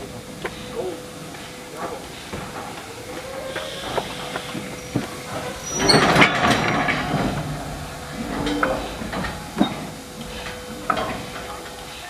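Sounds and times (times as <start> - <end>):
train wagons running: 0.0 - 12.0.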